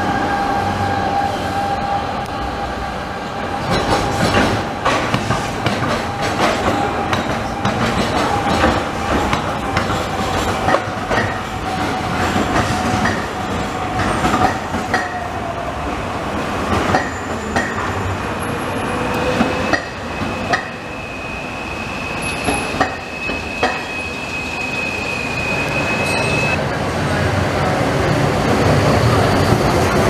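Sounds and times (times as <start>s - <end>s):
tram wheels clicking on rails: 3.4s - 20.9s, 22.2s - 23.9s
high wheel squeal: 18.4s - 26.6s, 28.0s - 30.0s.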